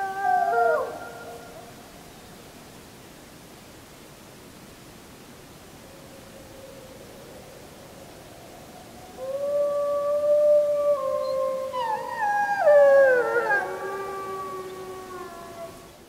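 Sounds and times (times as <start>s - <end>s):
wolves howling: 0.0s - 1.6s, 9.1s - 15.9s
faint hiss: 0.0s - 16.0s.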